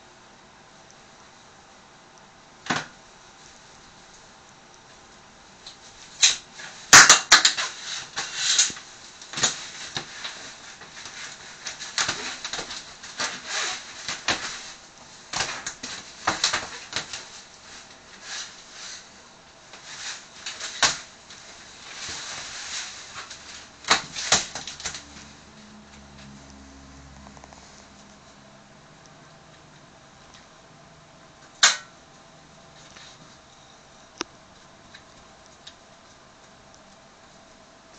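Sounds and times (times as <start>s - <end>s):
shower curtain rustling and scraping: 5.8s - 26.4s.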